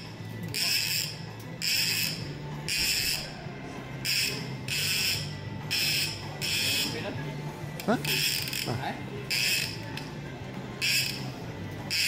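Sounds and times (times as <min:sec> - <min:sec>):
fishing reel rasping whir: 0:00.0 - 0:03.4, 0:04.0 - 0:07.0, 0:08.0 - 0:10.1, 0:10.8 - 0:12.0.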